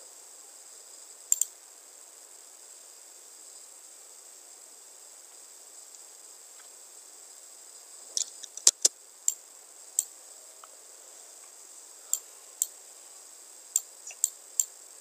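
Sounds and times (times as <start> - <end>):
faint hiss: 0.0 - 15.0
computer mouse clicking: 8.2 - 9.4, 13.8 - 14.7.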